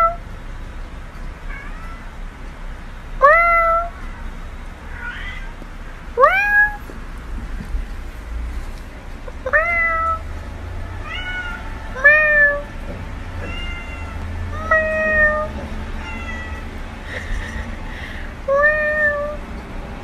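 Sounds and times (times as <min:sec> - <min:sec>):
cat meowing: 0:00.0 - 0:00.2, 0:01.5 - 0:02.2, 0:03.2 - 0:05.6, 0:06.2 - 0:06.9, 0:09.4 - 0:10.3, 0:10.9 - 0:16.8, 0:17.4 - 0:19.4.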